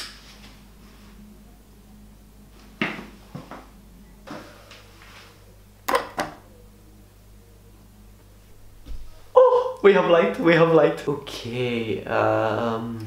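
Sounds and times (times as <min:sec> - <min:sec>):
washing machine control clicks: 0:05.9 - 0:06.4.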